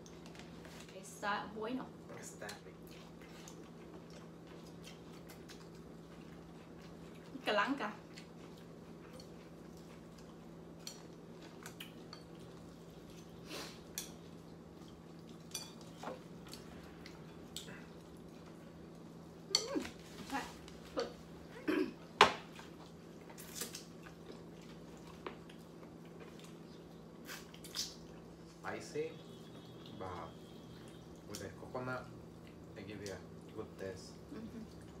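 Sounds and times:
eating noises: 0:08.0 - 0:21.5, 0:22.5 - 0:28.5
chopsticks clinking on ceramic bowls: 0:15.4 - 0:16.1, 0:19.5 - 0:19.9.

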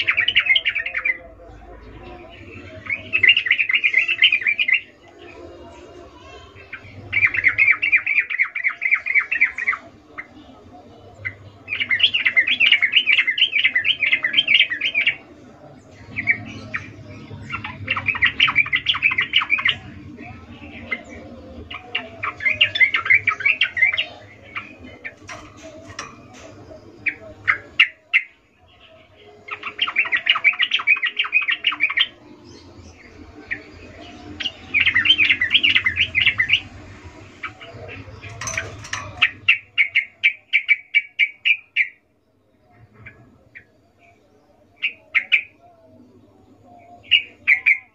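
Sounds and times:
bird singing bubbly chattering: 0:06.1 - 0:15.3, 0:16.0 - 0:42.2.

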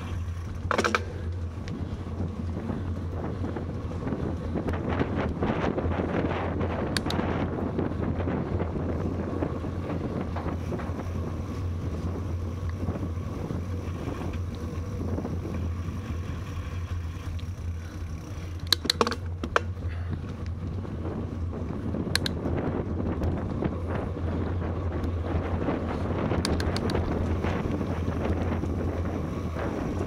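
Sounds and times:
bicycle rolling rumble: 0:00.0 - 0:30.0
wind buffeting microphone: 0:00.0 - 0:30.0
sharp clicks or knocks: 0:00.6 - 0:01.3, 0:18.6 - 0:19.7, 0:26.4 - 0:27.0.

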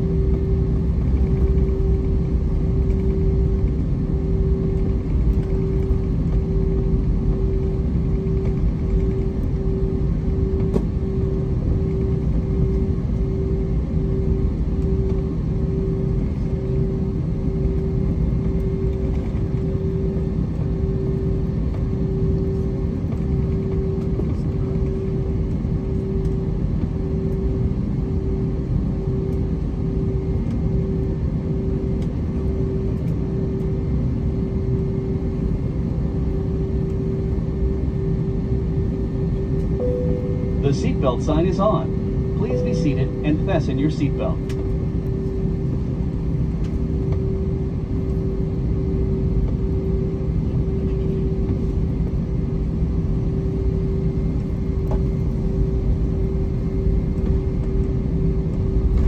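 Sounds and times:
constant cabin hum: 0:00.0 - 0:59.0
jet engines low rumble: 0:00.0 - 0:59.0.

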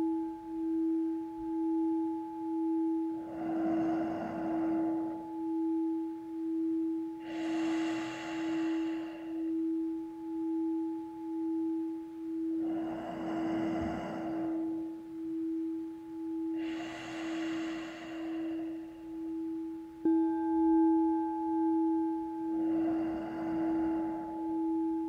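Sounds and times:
singing bowl ringing: 0:00.0 - 0:25.0
person breathing through nose: 0:03.2 - 0:05.4, 0:07.2 - 0:09.7, 0:12.6 - 0:14.9, 0:16.5 - 0:19.5, 0:22.6 - 0:24.7.

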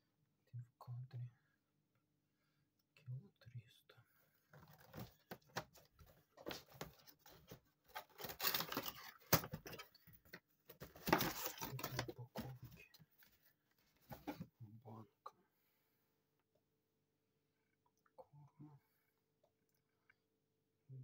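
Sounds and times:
cardboard rustling and scraping: 0:04.6 - 0:10.0, 0:10.7 - 0:14.5.

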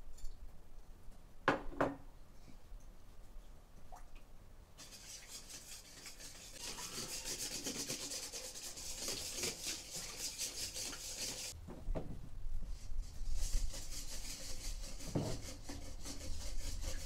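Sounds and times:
whisk scraping metal bowl: 0:04.8 - 0:11.6, 0:13.2 - 0:17.0.

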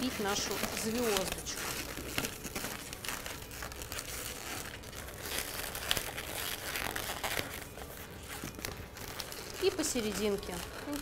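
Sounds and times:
balloon rubber creaking: 0:00.0 - 0:11.0.

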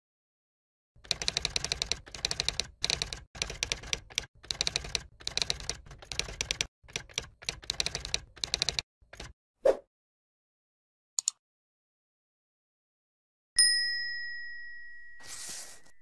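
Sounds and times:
keyboard key clicks: 0:11.2 - 0:11.4.

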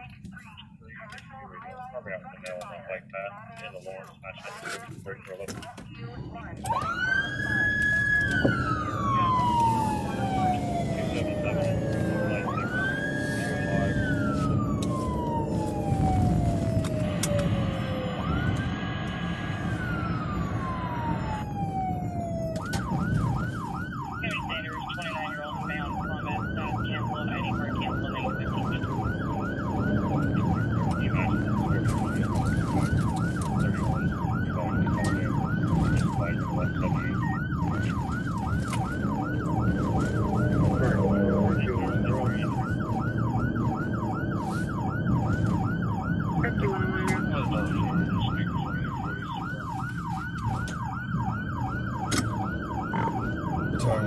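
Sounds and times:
road noise: 0:00.0 - 0:54.0
vehicle engine rumble: 0:00.0 - 0:54.0
siren wailing and yelping: 0:06.2 - 0:54.0.

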